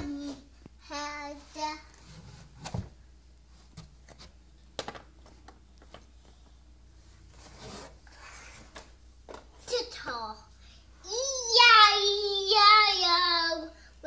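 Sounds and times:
child singing: 11.1 - 13.8.

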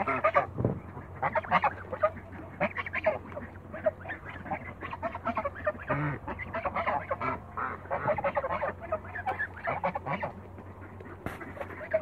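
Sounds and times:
geese honking: 0.0 - 12.0.

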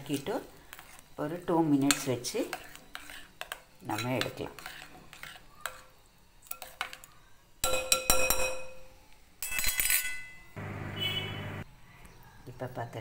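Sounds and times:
metal spoon scraping glass bowl: 1.8 - 5.8
steady hum: 10.6 - 11.6.

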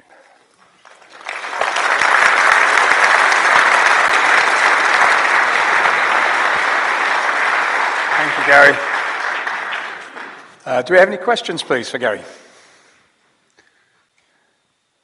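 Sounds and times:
audience applauding: 0.7 - 11.8.

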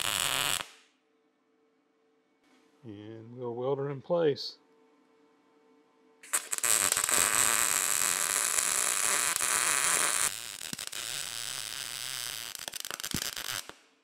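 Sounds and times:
arc welding crackling hiss: 0.0 - 0.8, 6.2 - 13.9.

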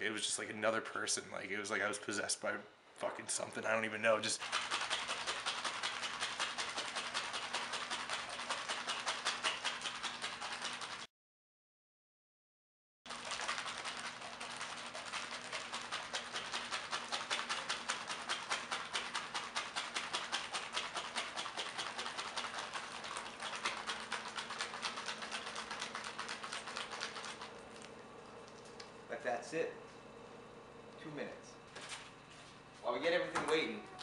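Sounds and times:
plastic pouch shaken rattling: 4.4 - 11.1, 13.1 - 27.6.

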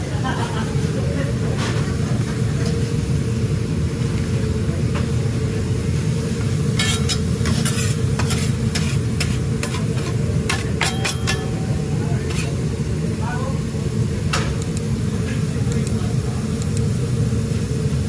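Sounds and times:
food sizzling on a griddle: 5.3 - 18.0
metal spatulas scraping griddle: 6.7 - 12.6.

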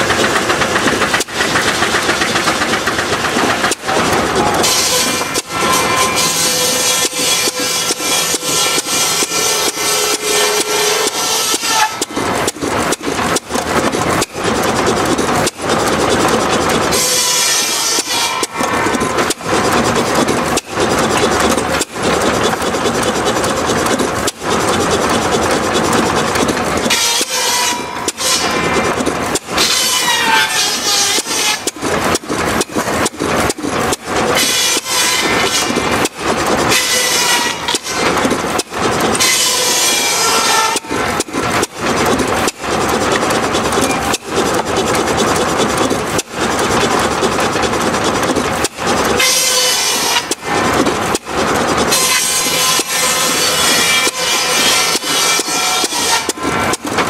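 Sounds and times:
saw rig running: 0.0 - 57.0
circular saw blade whining: 3.6 - 12.2, 16.2 - 19.4, 26.8 - 31.7, 34.4 - 35.8, 36.7 - 38.2, 39.2 - 41.0, 49.2 - 50.4, 51.9 - 56.8.

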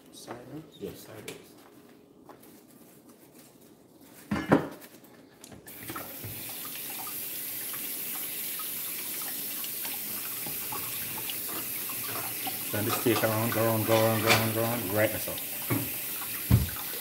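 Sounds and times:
kitchen tap running into sink: 5.7 - 17.0.

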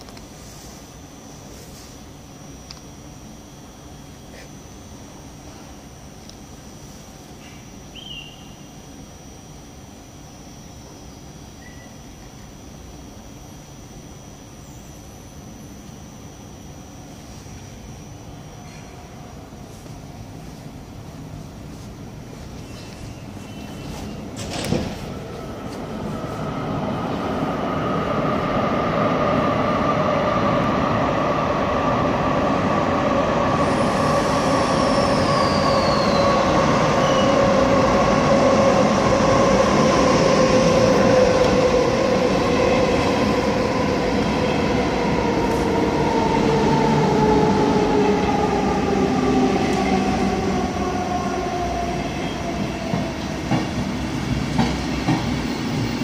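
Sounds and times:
train arriving in station: 0.0 - 56.0
train whine falling in pitch: 27.0 - 53.8
high brake squeal: 33.6 - 37.4.

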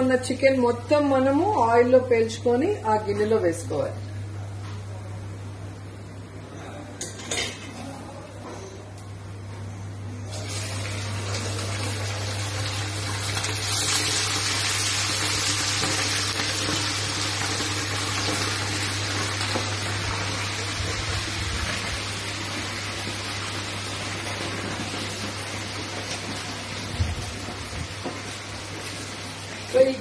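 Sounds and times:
chicken sizzling in hot oil: 10.4 - 30.0.

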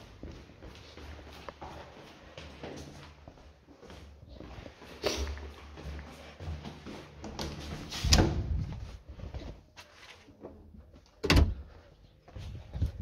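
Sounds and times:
glass door opening and shutting: 8.0 - 8.6, 11.2 - 11.6.

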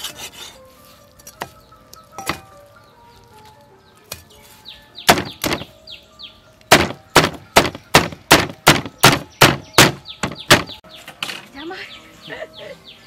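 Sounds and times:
cleaver chopping on wooden block: 5.1 - 5.7, 6.7 - 10.8.

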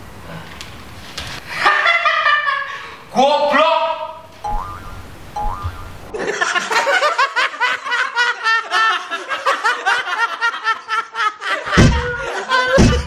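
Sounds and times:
high-pitched cackling laughter: 6.1 - 13.0.

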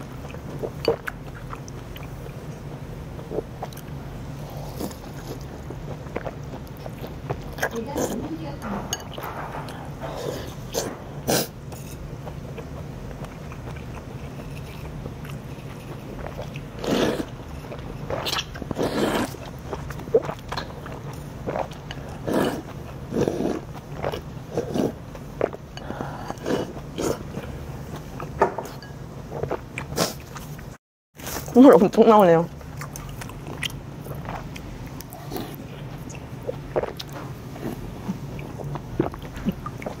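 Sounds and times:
chewing: 0.2 - 2.6, 3.2 - 31.5, 32.6 - 40.0
noodles slurped: 13.6 - 27.5.

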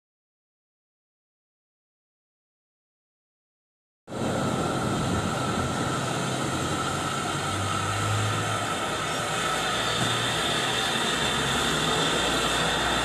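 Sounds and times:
steam locomotive hiss and rumble: 4.1 - 13.0.

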